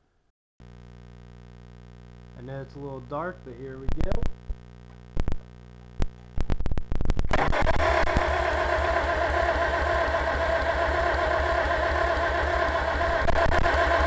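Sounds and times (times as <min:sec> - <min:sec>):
engine cranking over: 0:07.3 - 0:14.0.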